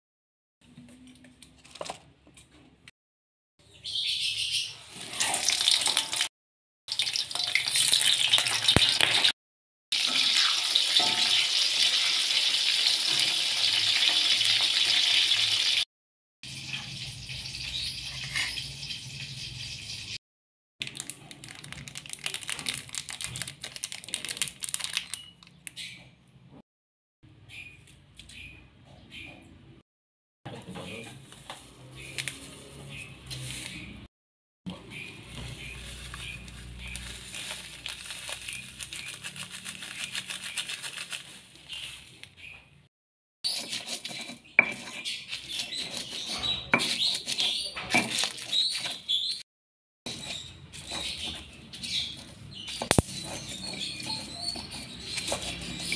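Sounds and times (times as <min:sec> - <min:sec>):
sachet crinkling and clicking: 0:20.8 - 0:25.8, 0:35.9 - 0:42.3
stone pestle grinding in mortar: 0:43.5 - 0:49.3, 0:50.1 - 0:55.9.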